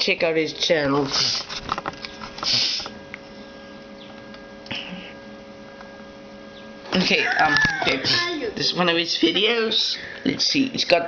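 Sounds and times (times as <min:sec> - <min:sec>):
faint multi-tone hum: 0:00.0 - 0:11.0
camera handling rustles and knocks: 0:01.4 - 0:02.5.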